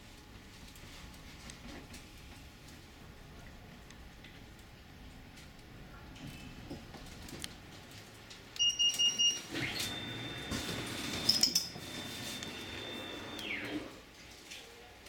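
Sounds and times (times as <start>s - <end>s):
high warning beeps: 8.6s - 13.8s
steady high warning tone: 8.6s - 14.0s.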